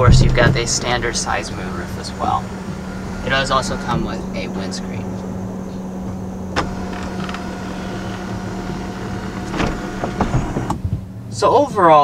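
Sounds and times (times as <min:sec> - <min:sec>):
steady low hum: 0:00.0 - 0:12.0
electric motor whine: 0:00.6 - 0:10.8.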